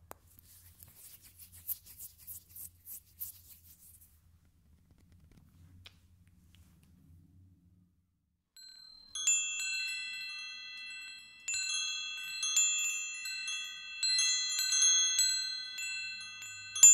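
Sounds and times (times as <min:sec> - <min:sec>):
wind chimes ringing: 0:08.6 - 0:16.9.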